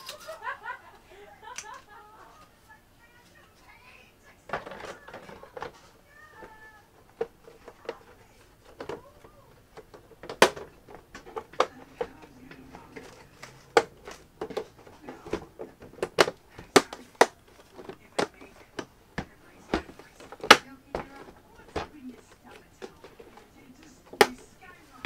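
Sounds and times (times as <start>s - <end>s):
plastic casing clicking and knocking: 4.5s - 24.5s.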